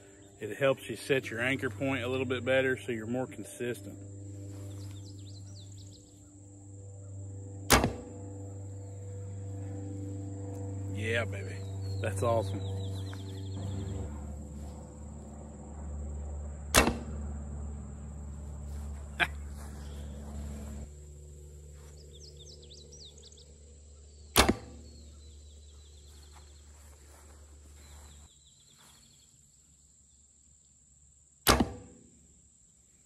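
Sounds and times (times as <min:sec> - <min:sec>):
bow string thwack: 0:07.7 - 0:08.1, 0:16.7 - 0:17.2, 0:24.4 - 0:24.8, 0:31.5 - 0:31.9.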